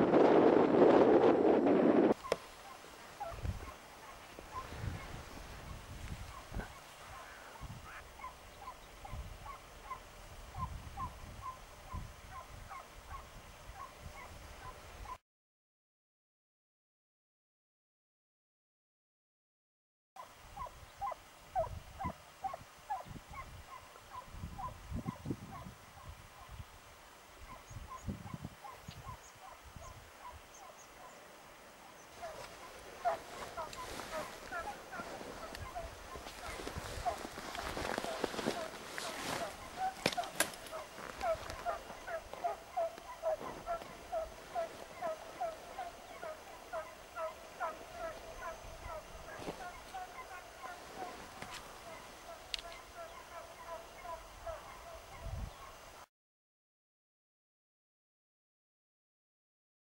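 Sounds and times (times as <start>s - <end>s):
distant hounds baying: 2.1s - 15.2s, 20.2s - 26.6s, 27.4s - 55.8s.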